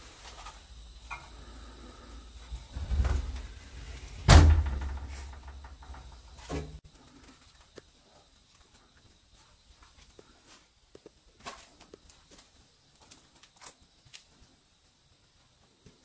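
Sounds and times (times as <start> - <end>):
faint ticks and creaks: 0.2 - 16.0
loud bang: 2.8 - 6.0.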